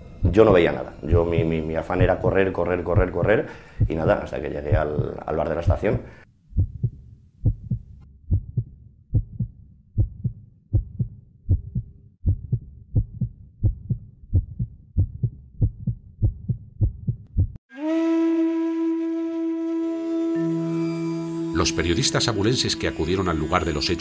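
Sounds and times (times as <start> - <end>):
faint low drone: 0.0 - 4.1
heartbeat thumps: 1.1 - 2.3, 3.0 - 17.6.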